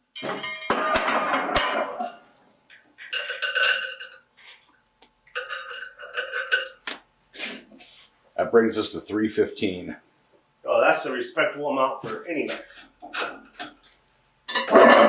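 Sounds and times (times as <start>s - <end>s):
metal weight plates clanking: 0.2s - 2.3s, 3.0s - 4.3s, 5.4s - 6.8s, 14.5s - 15.0s.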